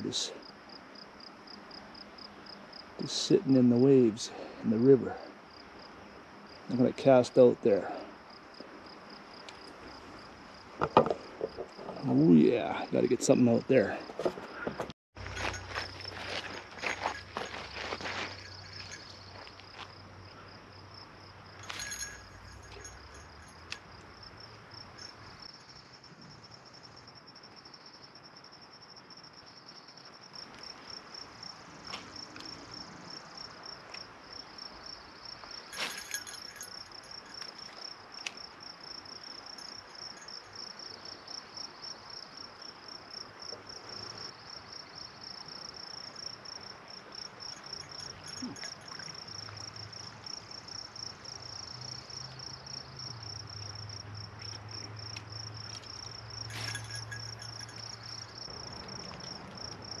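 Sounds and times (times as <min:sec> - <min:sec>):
insect chirping: 0:00.0 - 1:00.0.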